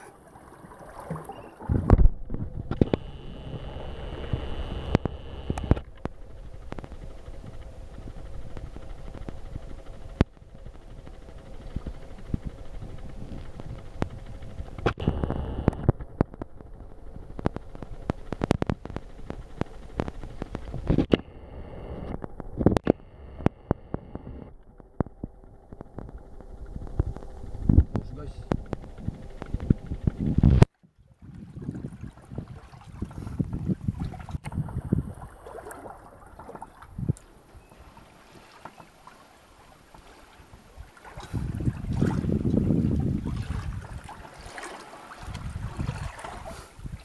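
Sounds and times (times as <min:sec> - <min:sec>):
boat engine rumble: 0:00.0 - 0:47.0
wind on microphone: 0:01.6 - 0:05.8, 0:26.1 - 0:38.5, 0:40.5 - 0:44.5, 0:45.2 - 0:47.0
sharp clicks and knocks: 0:04.8 - 0:07.6, 0:13.3 - 0:21.3, 0:22.0 - 0:30.7.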